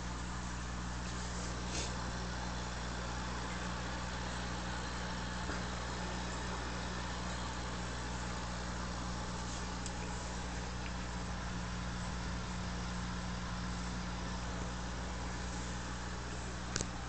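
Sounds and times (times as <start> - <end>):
air pump humming: 0.0 - 17.0
bubbles hissing in water: 0.2 - 13.1.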